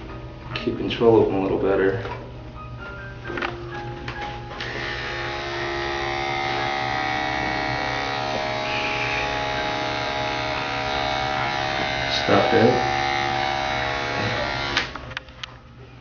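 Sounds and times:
electric clippers buzzing: 4.5 - 15.2.

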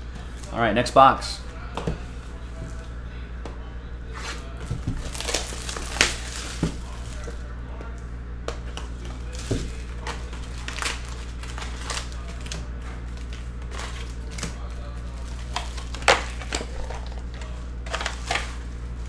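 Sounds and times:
foil packs handled: 4.3 - 7.5, 8.7 - 19.0
plastic shrink-wrap crinkling: 4.7 - 7.5, 9.0 - 19.0.

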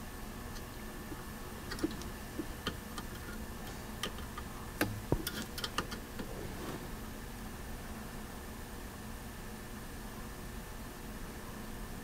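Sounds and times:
trim pot clicks and ticks: 0.5 - 6.3.

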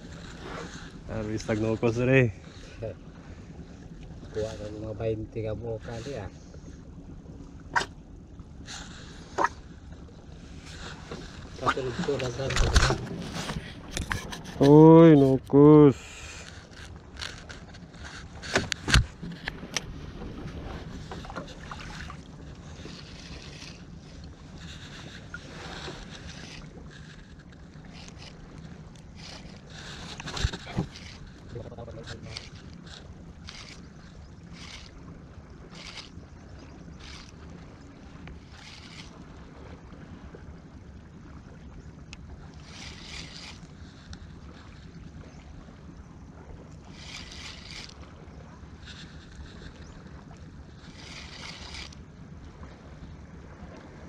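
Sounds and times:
wind and water wash: 0.0 - 54.0
fishing reel clicks and knocks: 16.3 - 19.9, 22.8 - 23.9, 24.7 - 35.0, 35.7 - 36.3, 36.9 - 37.4, 38.2 - 39.2, 42.6 - 44.9, 46.9 - 48.1, 48.8 - 50.1, 50.7 - 52.0.

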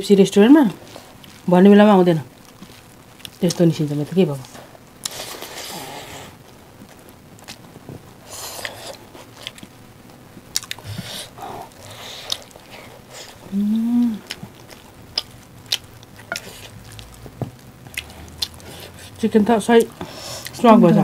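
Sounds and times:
squishy mixing of food: 0.5 - 5.6, 14.2 - 21.0
wet chewing: 2.4 - 6.2, 8.3 - 9.7, 10.5 - 19.2
person humming mmm: 13.4 - 14.4.

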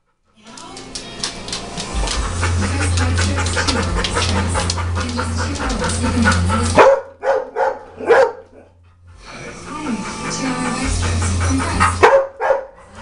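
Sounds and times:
rustling and clicking: 0.5 - 6.8
dog barking: 2.6 - 8.8, 12.0 - 12.8.

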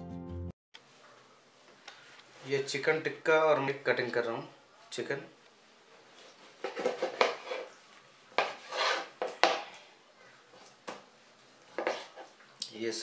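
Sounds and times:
knife on cutting board: 6.6 - 7.7, 8.4 - 9.6, 11.8 - 12.3.

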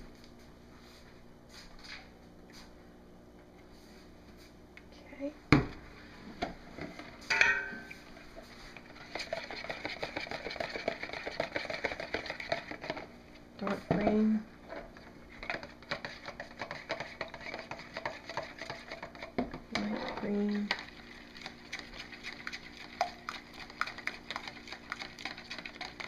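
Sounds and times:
spoon scraping plastic cup: 8.9 - 13.0, 15.4 - 20.8.

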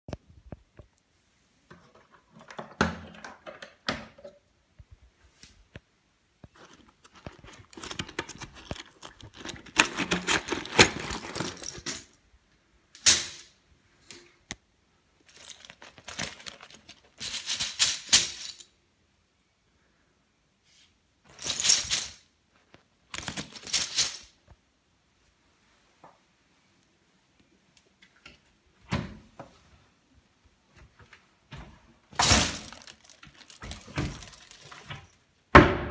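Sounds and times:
paper rustling and scraping: 6.5 - 12.0, 32.2 - 35.2.

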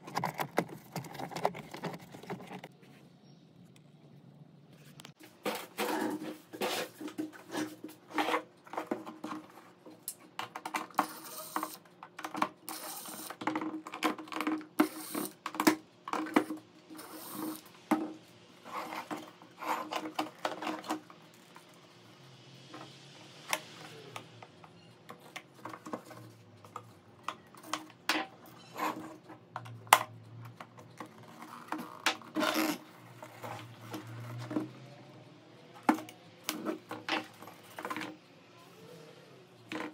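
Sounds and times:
hard plastic parts clicking: 0.0 - 2.8.

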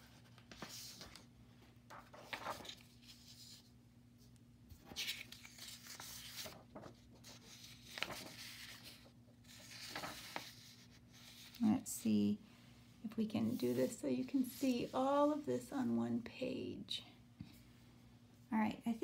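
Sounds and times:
paper sheets rustling and sliding: 0.0 - 1.3, 1.9 - 3.7, 4.8 - 11.8, 13.4 - 15.5
low electrical hum: 0.0 - 19.0.

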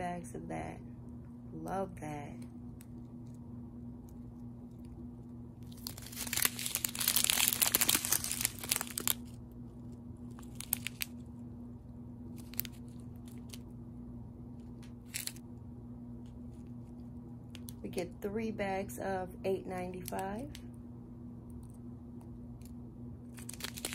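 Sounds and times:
plastic bags crinkling: 5.6 - 9.4, 10.3 - 11.2, 12.4 - 13.6, 15.0 - 15.4, 23.3 - 23.9.

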